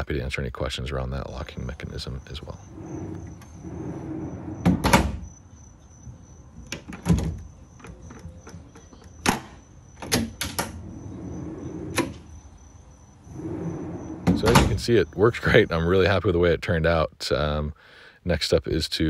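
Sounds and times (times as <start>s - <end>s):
drawer slides running: 2.6s - 5.2s, 10.2s - 12.3s, 13.2s - 14.8s.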